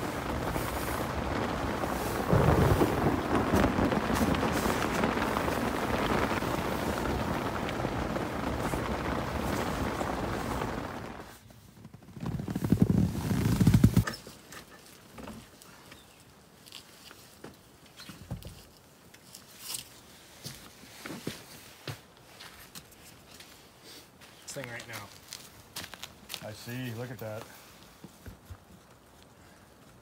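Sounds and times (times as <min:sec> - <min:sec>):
loud low rumbling: 0:00.0 - 0:11.2
rain on fabric tent: 0:00.0 - 0:30.0.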